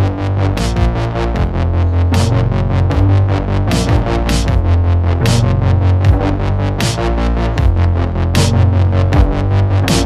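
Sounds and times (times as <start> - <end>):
music with heavy bass and beat: 0.0 - 10.0.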